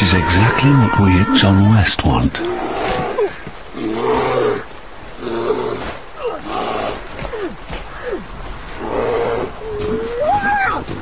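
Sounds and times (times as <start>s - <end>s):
bear roaring and growling: 2.4s - 7.5s.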